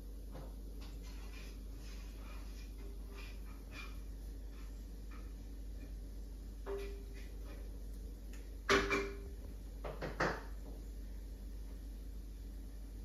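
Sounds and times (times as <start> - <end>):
cork knocking on tiled floor: 8.7 - 10.5.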